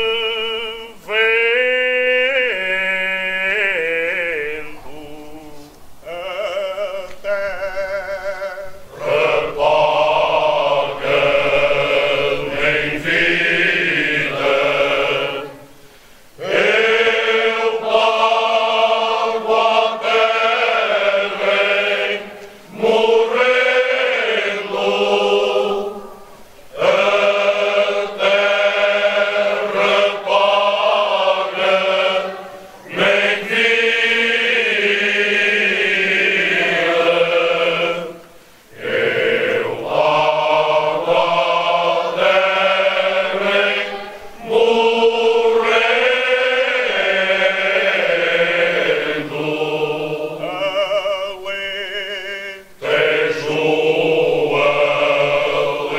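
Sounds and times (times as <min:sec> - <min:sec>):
chanted vocals music: 0:00.0 - 0:55.9.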